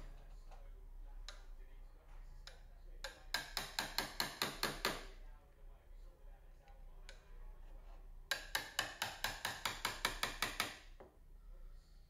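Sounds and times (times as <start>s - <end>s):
hammer tapping wood chisel: 2.4s - 5.1s, 8.3s - 11.1s.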